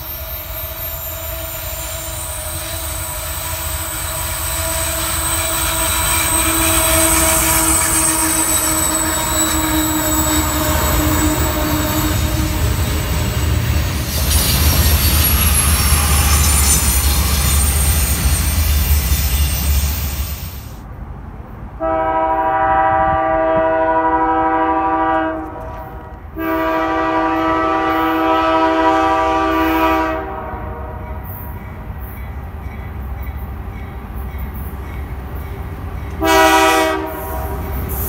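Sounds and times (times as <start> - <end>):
train wheels squealing: 0.0 - 20.8, 31.0 - 36.3, 37.1 - 38.0
diesel locomotive engine rumble: 0.0 - 38.0
rumble of freight cars: 0.0 - 38.0.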